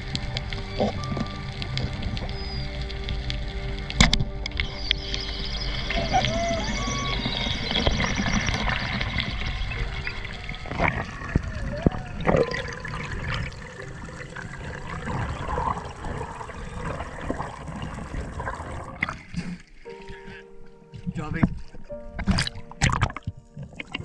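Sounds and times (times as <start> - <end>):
water sloshing and gurgling: 0.0 - 20.1, 21.4 - 24.0.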